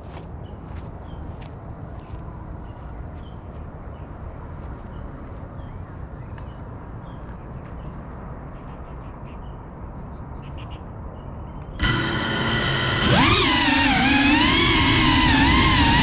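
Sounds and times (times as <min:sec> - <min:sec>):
drone motors whining: 0:11.8 - 0:16.0.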